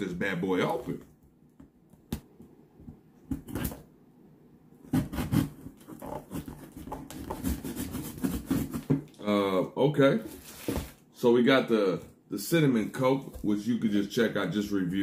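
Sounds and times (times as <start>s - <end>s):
cardboard scraping and rustling: 4.9s - 9.1s, 10.2s - 11.0s.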